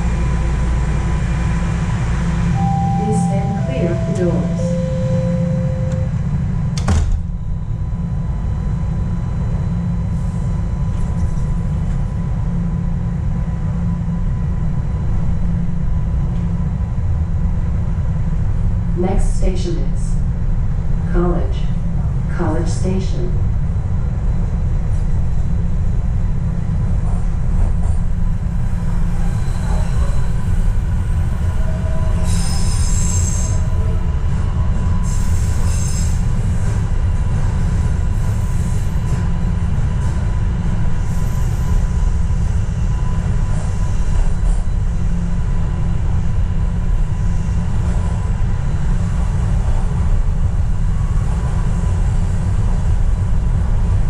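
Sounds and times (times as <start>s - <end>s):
subway wheels rumbling on rail: 0.0s - 54.0s
high-pitched wheel squeals: 31.5s - 34.0s.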